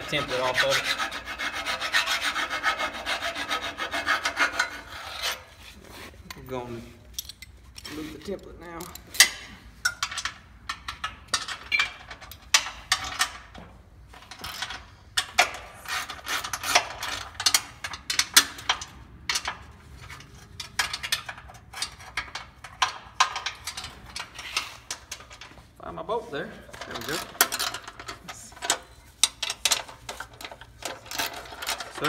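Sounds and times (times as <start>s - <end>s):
wrench clicking and clinking on metal: 7.1s - 7.9s.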